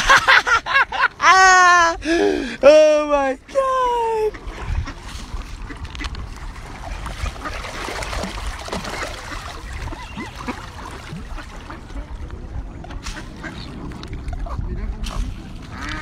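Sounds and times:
ducks splashing water: 4.3 - 16.0
duck calls: 15.7 - 16.0.

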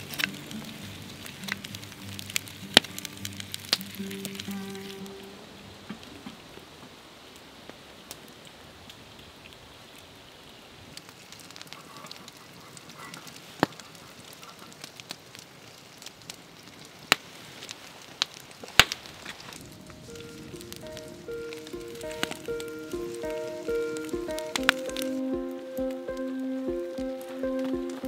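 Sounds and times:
low hiss: 0.0 - 28.0
wood fire crackling: 0.0 - 28.0
sharp pops: 18.6 - 28.0.

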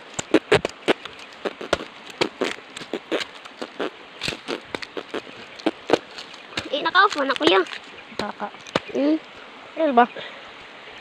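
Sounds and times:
machete chopping coconut: 0.2 - 3.5, 4.2 - 9.0.

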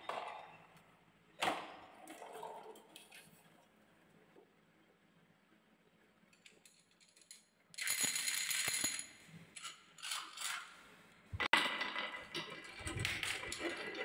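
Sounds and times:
balls clattering on wooden track: 6.7 - 9.1, 11.4 - 14.0.

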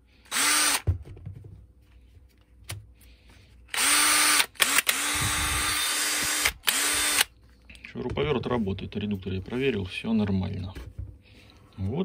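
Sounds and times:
cordless drill spinning: 0.2 - 0.9, 3.7 - 7.4.

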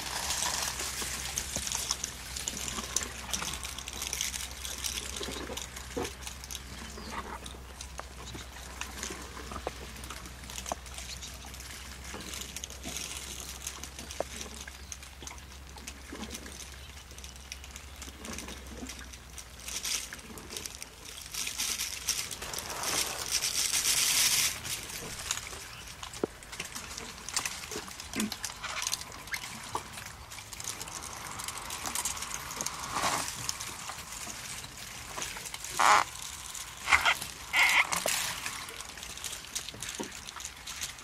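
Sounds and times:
steady rain: 0.0 - 14.9, 20.7 - 41.0
twigs and leaves snapping: 16.2 - 41.0
rushing swell: 29.9 - 35.0.

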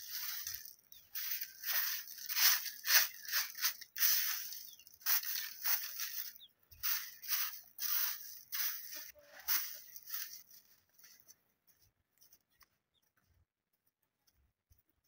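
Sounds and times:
twig broom sweeping dirt: 0.0 - 11.4.

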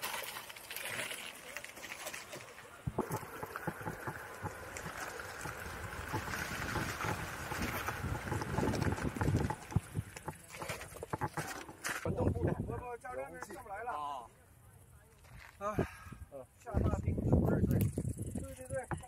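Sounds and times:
electric skateboard riding: 0.0 - 12.0
wind buffeting microphone: 2.9 - 10.5, 12.0 - 13.0, 15.8 - 19.0.

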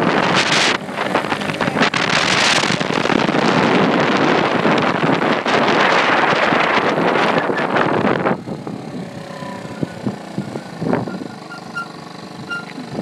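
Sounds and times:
wind buffeting microphone: 0.0 - 13.0
moped engine idling: 8.0 - 13.0.

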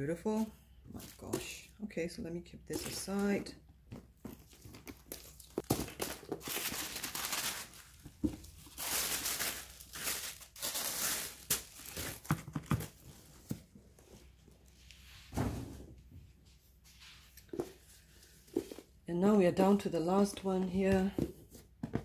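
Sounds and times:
tissue paper rustling: 4.5 - 12.3.

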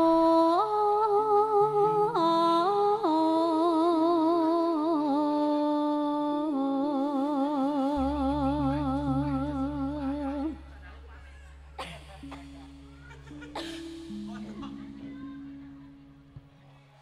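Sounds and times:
woman singing long notes: 0.0 - 16.6
electronic keyboard accompaniment: 8.0 - 17.0
low bass note: 8.0 - 17.0.

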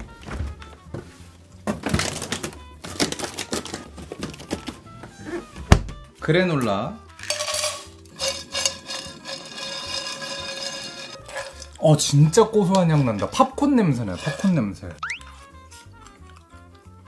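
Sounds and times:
freezer door thump: 5.6 - 6.0
granola rattling into a pan: 7.2 - 12.0.

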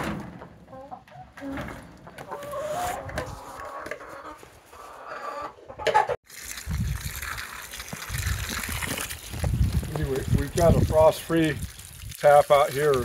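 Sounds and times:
chickens clucking: 0.2 - 6.2.

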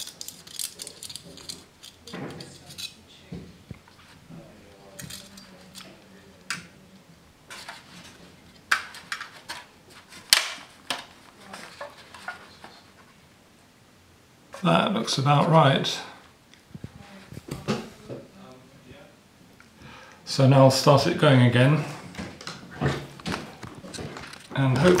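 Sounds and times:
aluminium foil crinkling: 0.0 - 3.0.

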